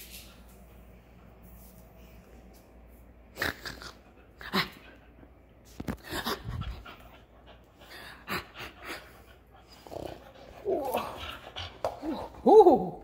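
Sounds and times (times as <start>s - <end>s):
dog panting: 4.0s - 12.1s.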